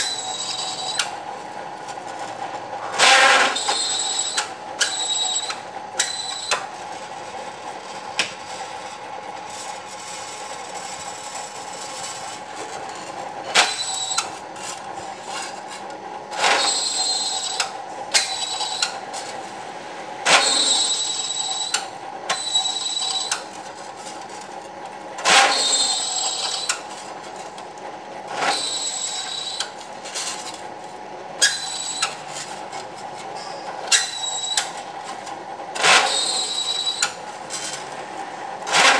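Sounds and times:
drill bit whining through metal: 0:00.0 - 0:01.2, 0:03.0 - 0:06.6, 0:13.5 - 0:14.4, 0:16.3 - 0:19.0, 0:20.3 - 0:23.5, 0:25.5 - 0:26.8, 0:28.5 - 0:29.8, 0:31.4 - 0:32.5, 0:33.4 - 0:34.8, 0:35.8 - 0:37.8.

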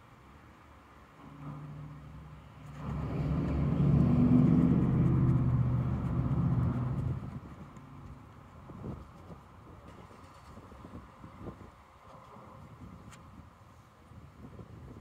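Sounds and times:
vehicle engine rumble passing: 0:00.8 - 0:11.4.

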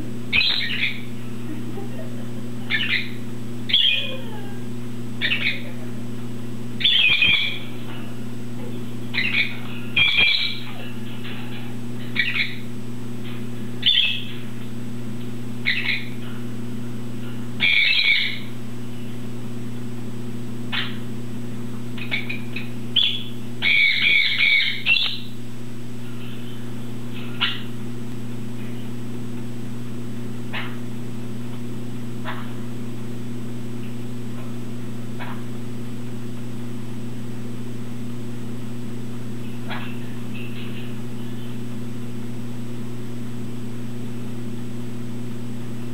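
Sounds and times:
steady low hum: 0:00.0 - 0:45.9
parrots chirping: 0:00.3 - 0:01.1, 0:02.7 - 0:04.2, 0:05.2 - 0:05.7, 0:06.8 - 0:07.8, 0:09.1 - 0:12.7, 0:13.8 - 0:14.5, 0:15.6 - 0:16.2, 0:17.6 - 0:18.6, 0:20.7 - 0:21.0, 0:22.0 - 0:25.4, 0:27.2 - 0:27.8, 0:30.5 - 0:30.8, 0:39.6 - 0:41.0.

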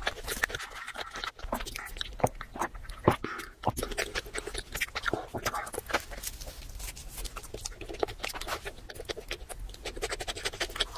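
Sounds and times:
chewing: 0:00.0 - 0:10.9
crusty bread crackling: 0:03.8 - 0:10.9.

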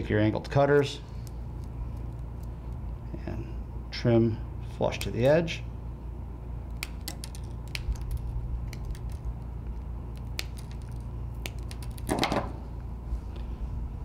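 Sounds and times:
steady low hum: 0:00.0 - 0:14.0
cutters snipping wires: 0:04.8 - 0:05.4, 0:06.7 - 0:09.4, 0:10.1 - 0:12.4.

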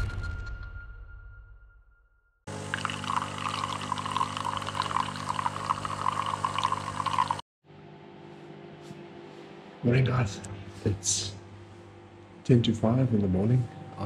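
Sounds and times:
coffee pouring into cup: 0:02.5 - 0:07.4
espresso machine hum: 0:02.5 - 0:07.4.

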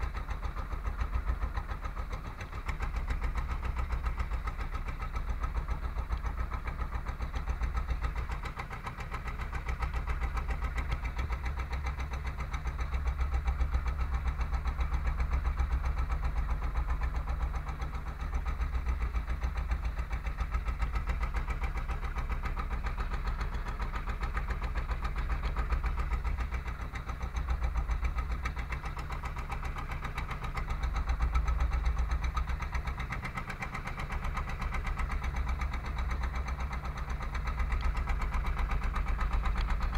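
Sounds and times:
boat engine droning: 0:00.0 - 0:39.9.

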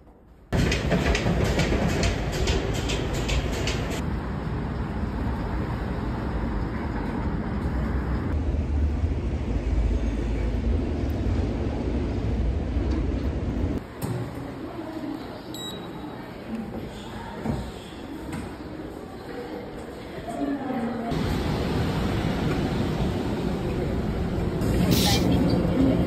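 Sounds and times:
street traffic rumble: 0:00.6 - 0:15.3, 0:21.1 - 0:26.0
card reader beep: 0:15.6 - 0:15.9
station ambience: 0:18.6 - 0:26.0.

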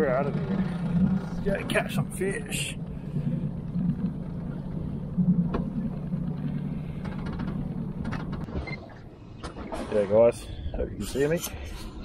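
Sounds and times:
outboard motor droning: 0:00.0 - 0:09.3.

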